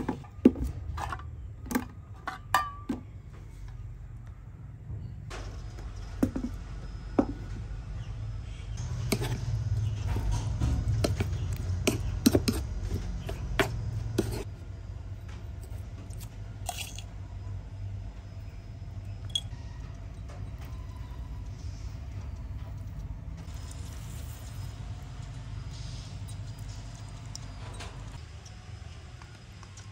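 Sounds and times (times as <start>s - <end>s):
metal spoon scraping a bowl: 8.8s - 14.5s.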